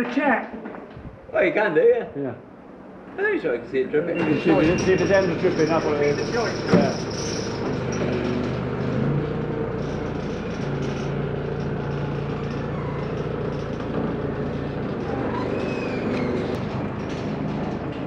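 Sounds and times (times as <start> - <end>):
diesel engine running: 4.2 - 18.0.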